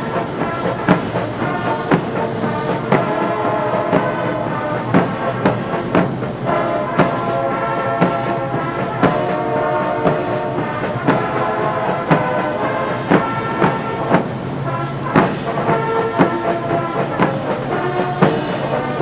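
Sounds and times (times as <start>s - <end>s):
brass band playing a march: 0.0s - 19.0s
drum strokes: 0.0s - 19.0s.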